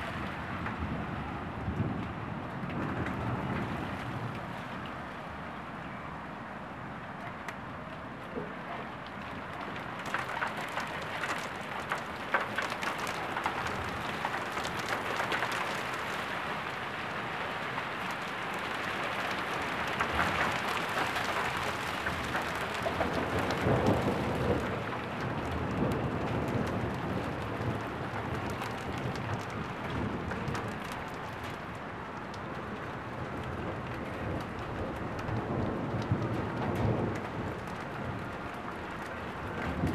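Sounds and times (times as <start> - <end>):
rain pattering: 0.0 - 39.9
raindrops ticking: 7.2 - 39.9
low thunder rumble: 33.1 - 39.9.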